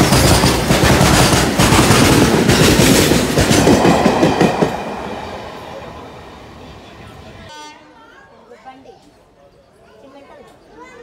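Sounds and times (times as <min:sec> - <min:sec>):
train wheels knocking over rail joints: 0:00.0 - 0:05.9
freight train rumbling past: 0:00.0 - 0:07.6.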